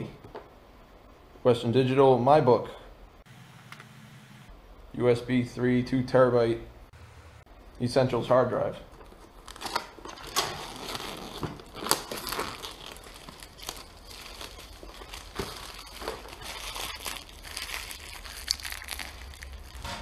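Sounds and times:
cardboard packaging crinkling: 0:09.0 - 0:19.9.

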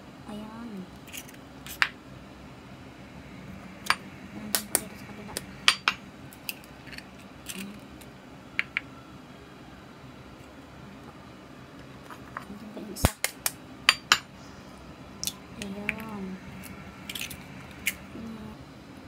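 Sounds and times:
eggs being cracked: 0:15.2 - 0:18.0.

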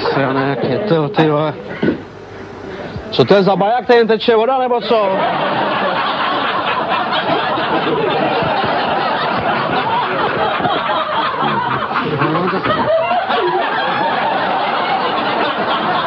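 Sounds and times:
audience laughing: 0:00.0 - 0:01.6, 0:04.8 - 0:16.0.

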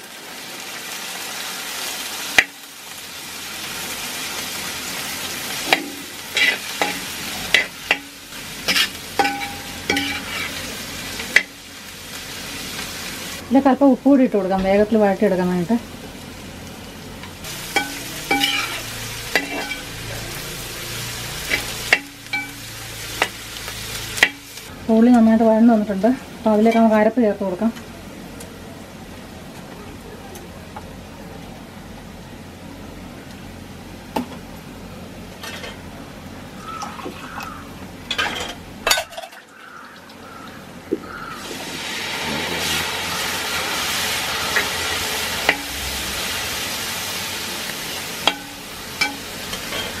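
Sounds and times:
onions sizzling in oil: 0:00.0 - 0:29.6, 0:30.7 - 0:50.0
utensils clinking on metal pan: 0:05.7 - 0:10.6, 0:17.7 - 0:20.0, 0:21.5 - 0:23.4, 0:24.2 - 0:24.5, 0:35.4 - 0:35.8, 0:38.1 - 0:39.5, 0:48.2 - 0:50.0
metal spoon knocking pan: 0:06.8 - 0:10.2, 0:17.8 - 0:18.8, 0:21.5 - 0:22.6.

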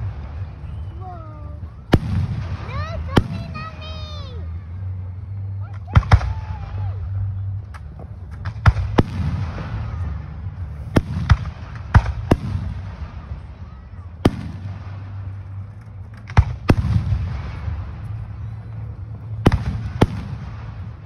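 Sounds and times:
fireworks bursting bangs: 0:00.0 - 0:04.3, 0:05.9 - 0:21.0
low rumble: 0:00.0 - 0:21.0.

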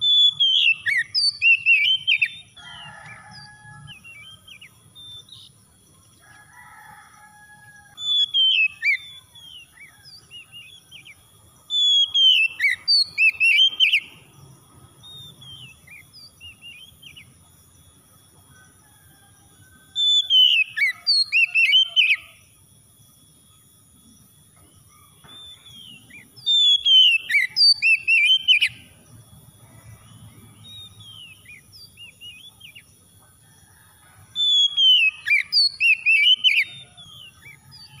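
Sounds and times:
bird singing: 0:00.0 - 0:38.0.

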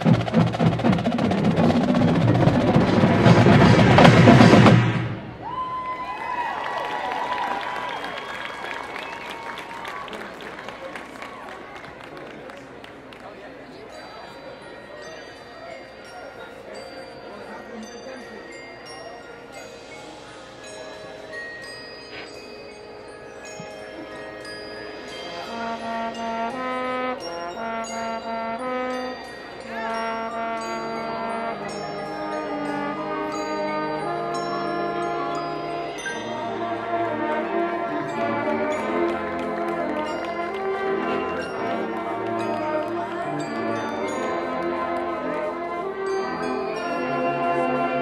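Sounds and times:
marching band playing: 0:00.0 - 0:05.7, 0:23.4 - 0:48.0
mallet percussion ringing: 0:13.8 - 0:48.0.

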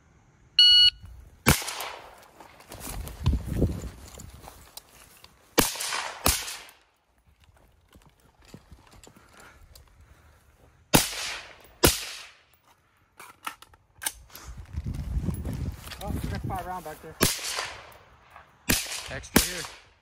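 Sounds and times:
rifle shots with echo: 0:01.5 - 0:02.2, 0:05.6 - 0:06.8, 0:10.9 - 0:12.4, 0:17.2 - 0:20.0
footsteps through dry grass: 0:02.0 - 0:11.4, 0:14.3 - 0:18.6.

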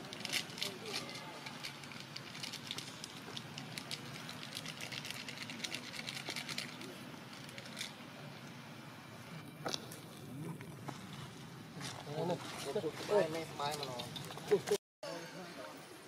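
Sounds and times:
dry leaves and twigs crackling: 0:00.0 - 0:08.0
steady outdoor hiss: 0:00.0 - 0:16.0.

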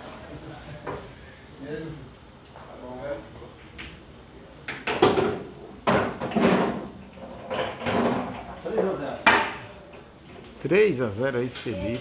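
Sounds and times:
pool balls clacking: 0:04.7 - 0:09.6.

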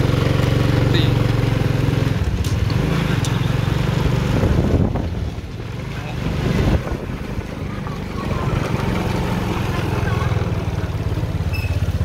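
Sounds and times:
scooter engine running: 0:00.0 - 0:12.0.

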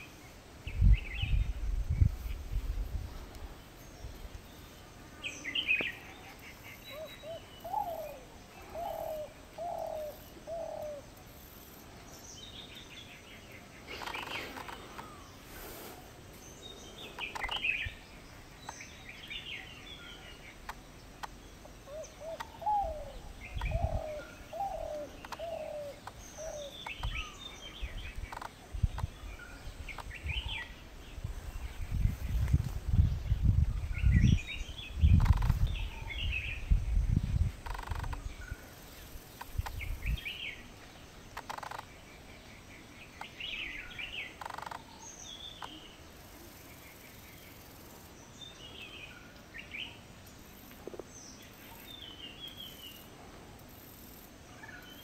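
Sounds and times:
dove cooing: 0:06.9 - 0:11.1, 0:21.9 - 0:26.8
bird chirps: 0:16.4 - 0:30.8.

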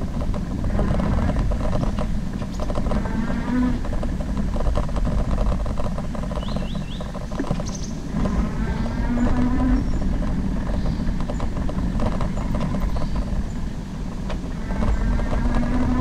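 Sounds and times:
bike rattling over bumps: 0:00.0 - 0:16.0
tyres rumbling on dirt: 0:00.0 - 0:16.0
wind on microphone: 0:00.0 - 0:16.0.

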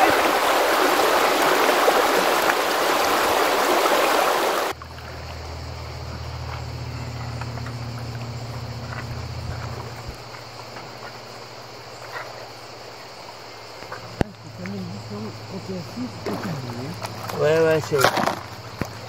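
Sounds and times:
river water rushing over rapids: 0:00.0 - 0:04.8
low steady hum: 0:04.7 - 0:11.7.

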